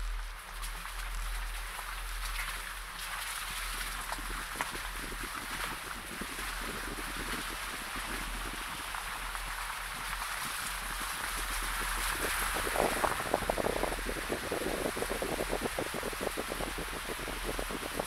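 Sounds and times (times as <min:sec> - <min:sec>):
rapid irregular crackling: 0:00.0 - 0:18.0
wind rushing over microphone: 0:04.3 - 0:18.0.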